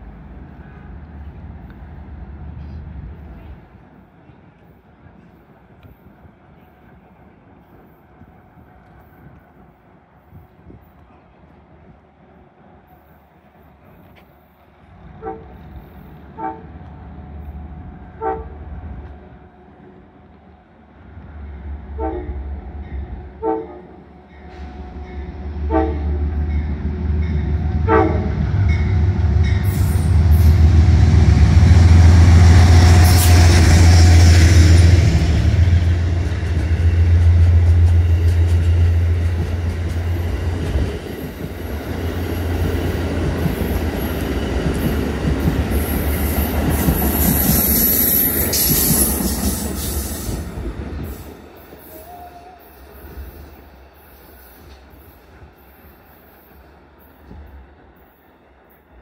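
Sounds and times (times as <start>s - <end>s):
wheels rushing on rail: 0.0s - 59.0s
train horn toots: 15.0s - 16.9s, 18.1s - 18.9s, 21.9s - 30.7s.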